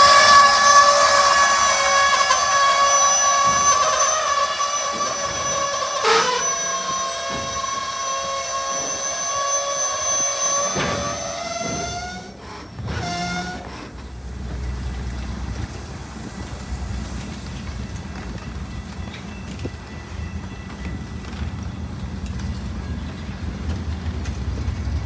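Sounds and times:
locomotive air horn: 0.0s - 13.9s
low rumble of passing train: 0.0s - 25.0s.

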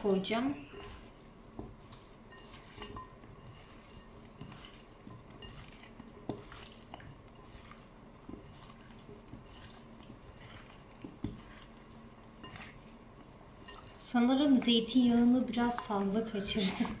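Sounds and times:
wet squishing and rustling: 0.0s - 17.0s.

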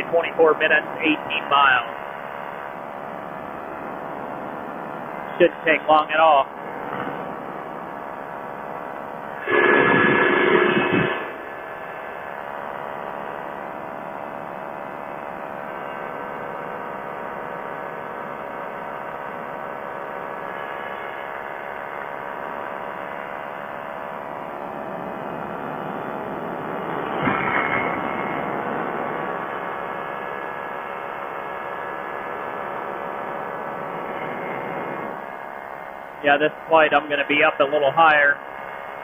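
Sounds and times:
ultralight engine and propeller: 0.0s - 39.0s
loud burst of noise: 9.3s - 13.6s, 19.6s - 39.0s.

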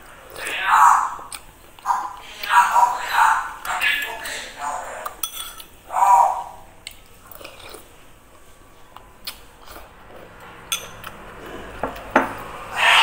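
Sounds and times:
chewing food: 6.8s - 12.1s.

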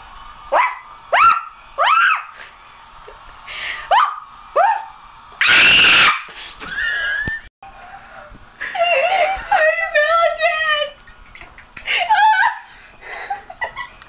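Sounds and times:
woman screaming: 1.1s - 2.4s, 3.9s - 6.3s.

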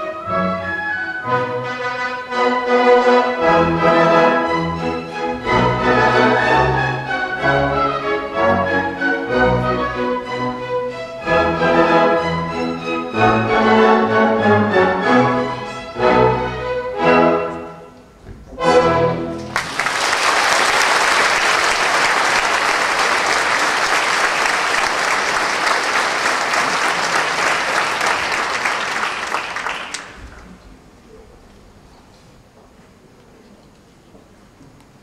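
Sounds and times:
orchestra playing chords: 0.0s - 19.9s
audience applauding: 19.4s - 30.6s.

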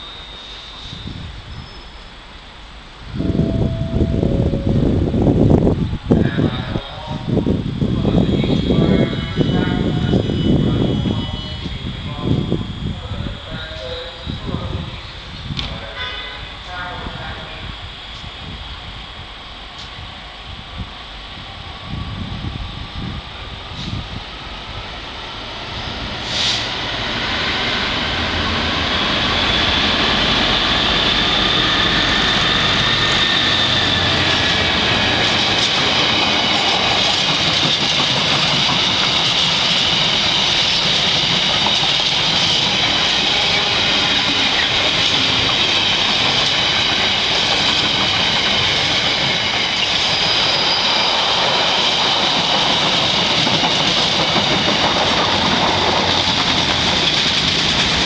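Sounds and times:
diesel locomotive engine: 0.0s - 58.0s
high-pitched wheel whine: 0.0s - 58.0s
train wheels rumbling on rails: 0.0s - 58.0s.

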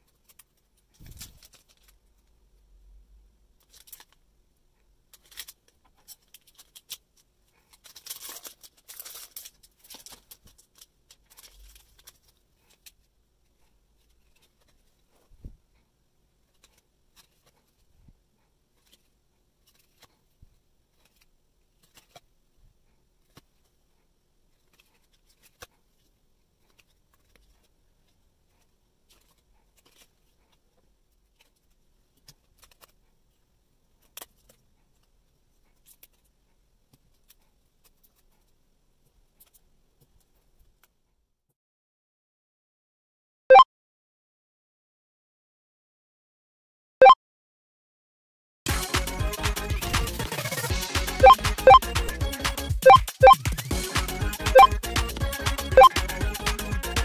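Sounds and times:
crinkly foil rustling: 0.0s - 2.3s, 3.6s - 4.2s, 5.1s - 15.3s, 24.5s - 33.0s.

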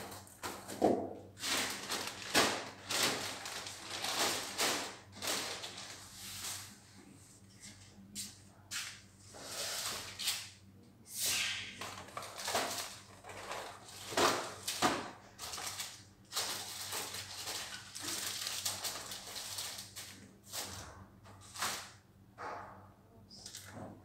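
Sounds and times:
plastic bags crinkling: 1.4s - 6.2s, 11.9s - 20.2s.

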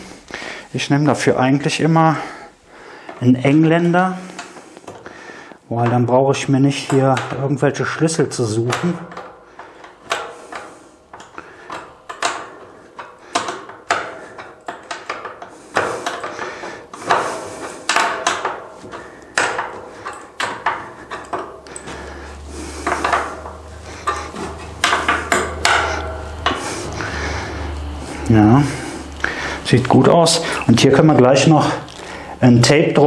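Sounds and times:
wrench and nut clinking on metal: 5.8s - 27.0s.

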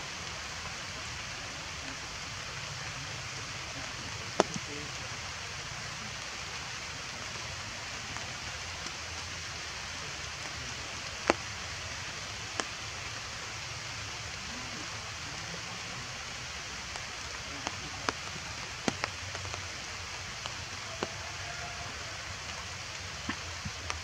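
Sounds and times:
rain hissing on foliage: 0.0s - 24.0s.

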